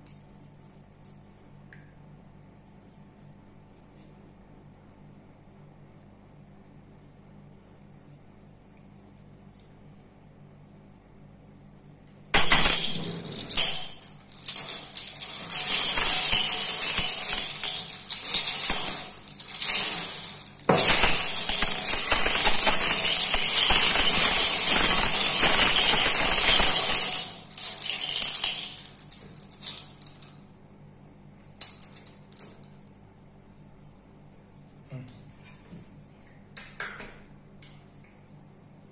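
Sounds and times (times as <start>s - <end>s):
glass marbles clinking: 12.4s - 30.4s.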